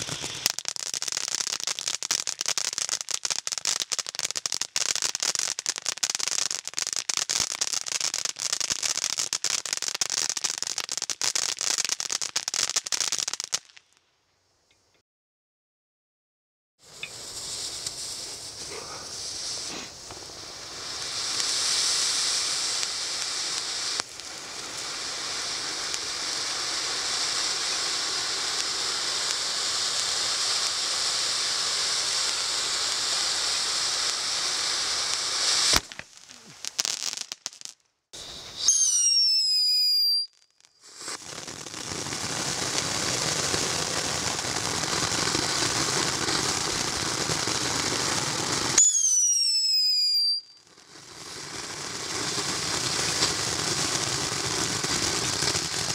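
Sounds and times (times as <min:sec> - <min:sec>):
falling firework whistle: 0:00.0 - 0:02.5, 0:16.8 - 0:55.9
firework fountain hissing: 0:00.0 - 0:13.7, 0:16.8 - 0:55.9
firework crackling: 0:00.0 - 0:14.0, 0:16.8 - 0:55.9
firework crack: 0:00.0 - 0:14.1, 0:16.8 - 0:55.9.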